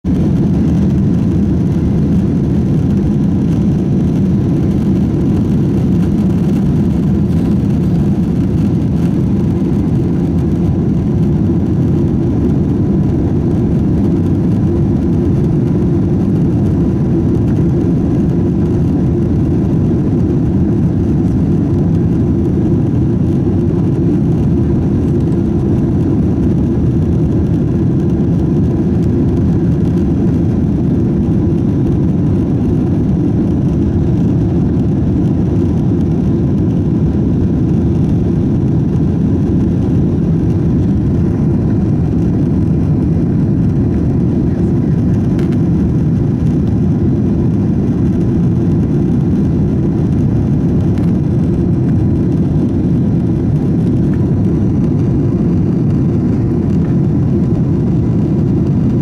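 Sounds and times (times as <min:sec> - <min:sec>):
jet engine cabin rumble: 0:00.0 - 0:59.0.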